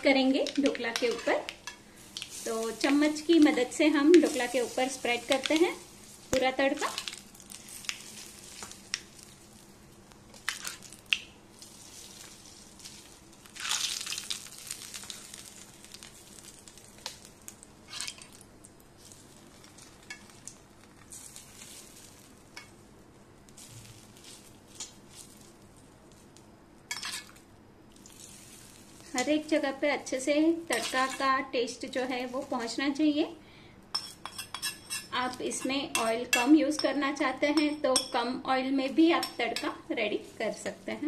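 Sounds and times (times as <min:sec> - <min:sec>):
steel spoon scraping and clinking: 0:34.0 - 0:37.0.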